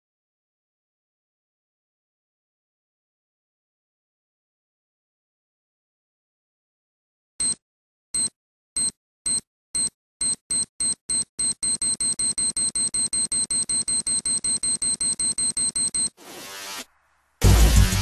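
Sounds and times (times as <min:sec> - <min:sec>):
high-pitched electronic alarm beeping: 0:08.2 - 0:16.2.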